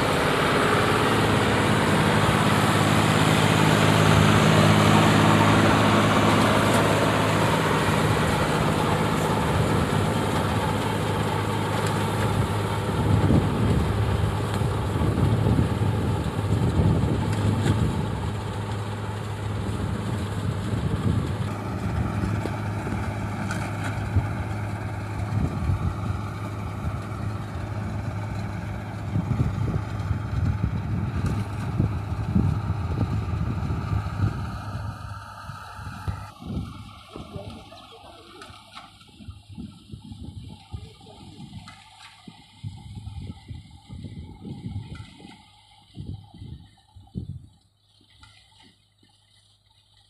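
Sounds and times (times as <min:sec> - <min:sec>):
tractor engine running under load: 0:00.0 - 0:50.0.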